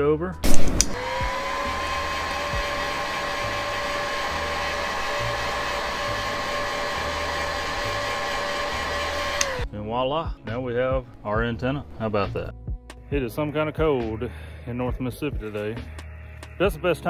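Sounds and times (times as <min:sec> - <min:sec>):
heat gun blowing: 0:00.4 - 0:09.7.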